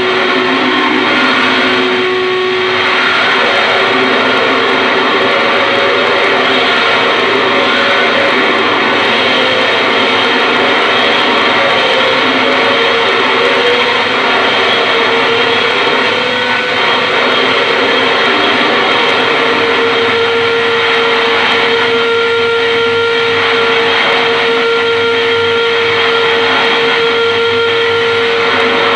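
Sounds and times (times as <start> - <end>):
harsh distorted noise: 0.0 - 28.9
steady droning tone: 0.0 - 28.9.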